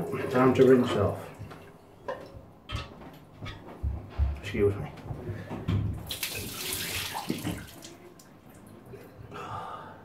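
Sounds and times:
tap water splashing into sink: 5.7 - 8.7.

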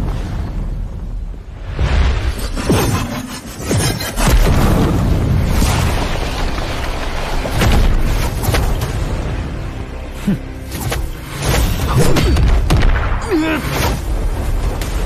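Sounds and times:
background music: 4.4 - 15.0.

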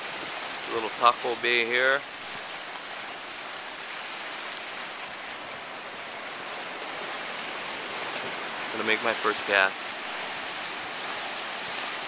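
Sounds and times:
surf breaking on rocks: 6.5 - 12.0.

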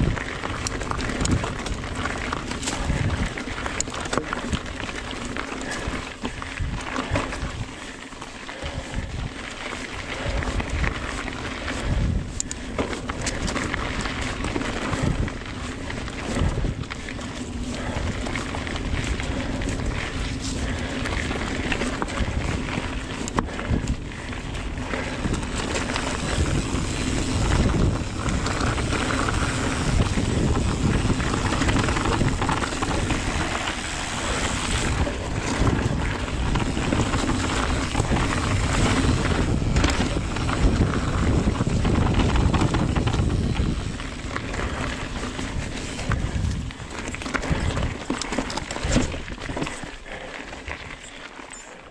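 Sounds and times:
wind rushing over microphone: 0.0 - 8.0, 8.6 - 49.7
bike tyres rolling on dirt: 0.0 - 51.9
bike knocks and rattles: 9.7 - 50.9.

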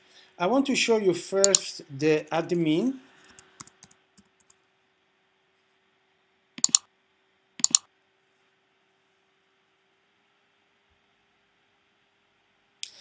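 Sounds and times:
double clicks: 1.4 - 1.7, 6.6 - 6.8, 7.6 - 7.9
laptop keystrokes: 1.4 - 1.7, 6.6 - 6.8, 7.6 - 7.9.

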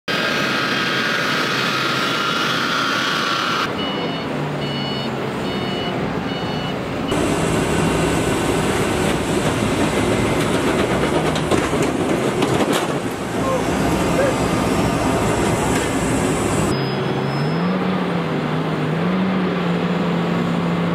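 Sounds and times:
loud steady machinery noise: 0.1 - 3.8, 6.9 - 16.8
jet engines whining: 0.1 - 4.3, 6.8 - 16.8
reversing alarm beeps: 3.2 - 7.2, 16.7 - 17.8.

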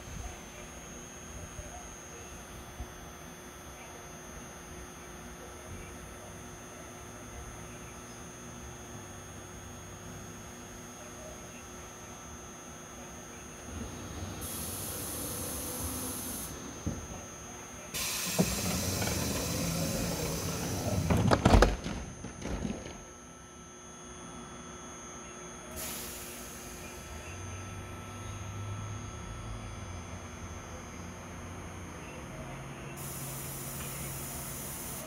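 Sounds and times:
train low steady hum: 0.0 - 35.0
doors shutting with a thump: 16.7 - 17.2, 18.0 - 23.1
air hissing: 18.0 - 21.3, 25.8 - 26.7
train doors rattling: 18.0 - 23.0.

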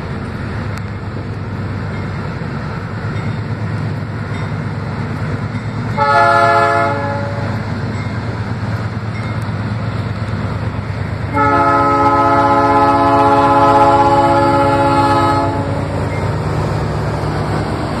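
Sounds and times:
diesel locomotive engines rumbling: 0.0 - 18.0
train air horn blasts: 6.0 - 7.6, 11.3 - 15.9.

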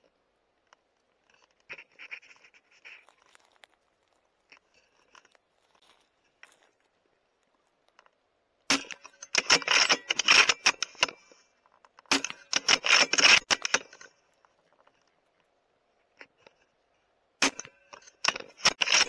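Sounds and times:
rifle bolt clicking and rattling: 8.7 - 11.2, 11.8 - 14.2.

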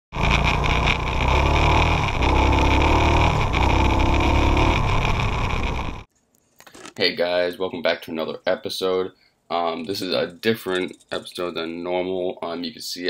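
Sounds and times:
off-road vehicle engine revving: 0.2 - 6.1.

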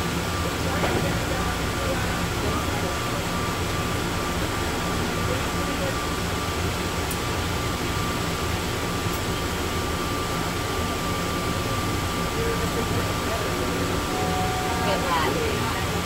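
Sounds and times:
people mover train rumble: 0.0 - 16.0
high whine: 12.7 - 16.0.

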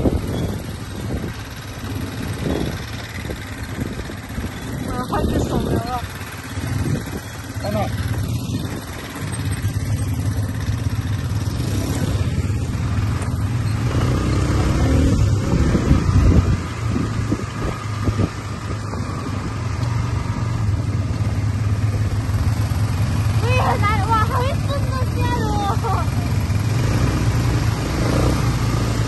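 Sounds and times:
wind noise on microphone: 0.0 - 10.2, 11.4 - 21.4
quad bike engine running: 0.0 - 29.0.

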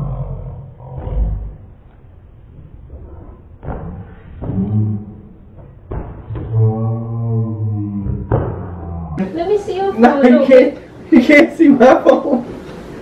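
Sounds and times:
deep drawn-out voice sounds: 0.0 - 1.8, 2.9 - 5.5, 6.3 - 9.2
thuds: 5.6 - 6.6, 8.1 - 8.8.

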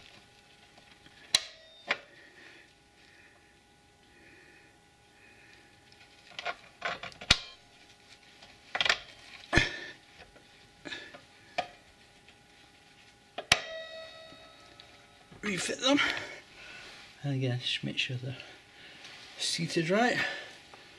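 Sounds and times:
metallic clank ringing: 13.4 - 15.4.

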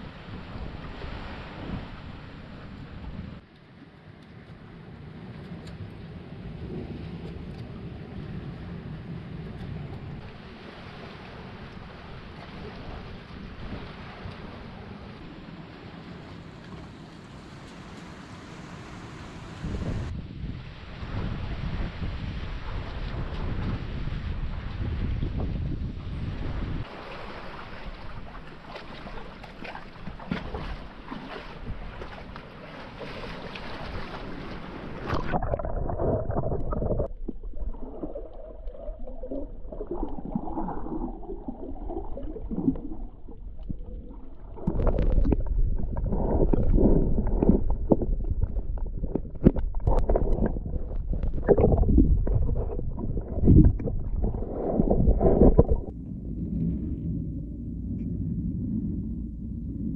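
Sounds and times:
waves splashing against rocks: 26.8 - 55.9
muffled underwater gurgling: 35.0 - 59.9.

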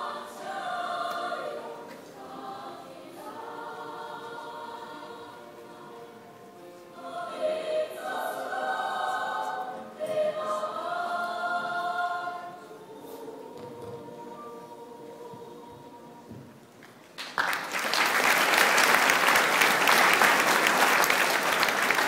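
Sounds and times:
young choir singing held notes: 0.0 - 16.7.

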